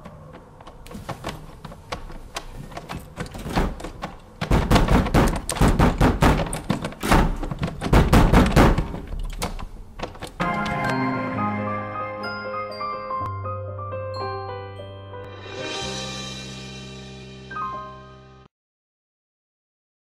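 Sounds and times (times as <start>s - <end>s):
heavy thuds on wooden door: 3.4s - 9.1s.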